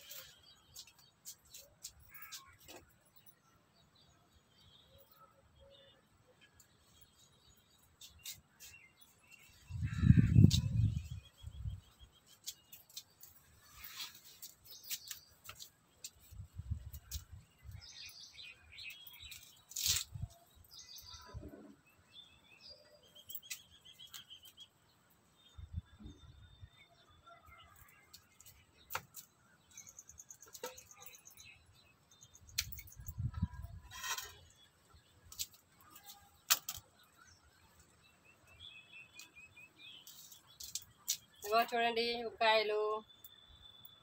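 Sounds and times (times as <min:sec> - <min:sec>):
small birds chirping: 0:00.0 - 0:44.0
leaves and stems rustling: 0:12.5 - 0:16.5.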